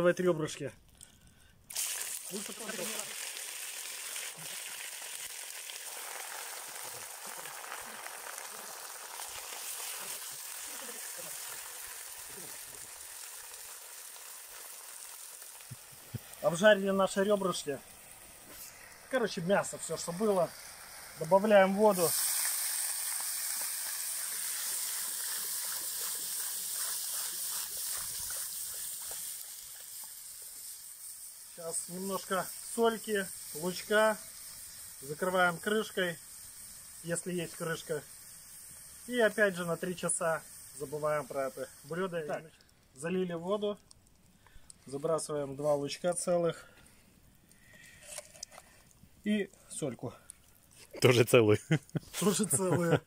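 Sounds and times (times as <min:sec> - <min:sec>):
water pouring into a pot: 0:01.7 - 0:42.5
ribs sizzling in hot oil: 0:01.7 - 0:46.4.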